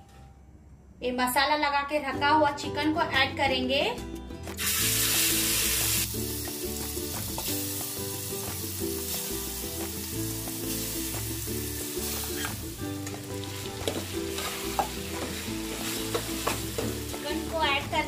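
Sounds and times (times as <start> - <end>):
soft background music: 0.0 - 18.0
chicken sizzling in a pot: 4.6 - 18.0.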